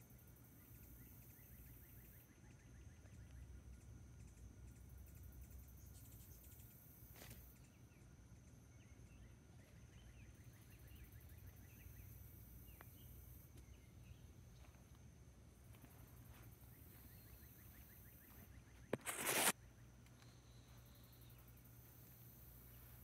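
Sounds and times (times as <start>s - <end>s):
high insect whine: 0.0s - 23.0s
soft bird chirps: 0.5s - 15.1s, 15.8s - 23.0s
high insect buzz: 15.8s - 19.6s.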